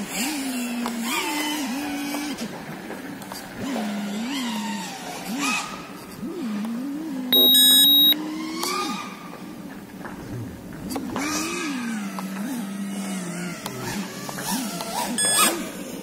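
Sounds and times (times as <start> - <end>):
quadcopter motors whining: 6.4 - 9.1, 11.2 - 16.0
electronic beep: 7.4 - 8.2.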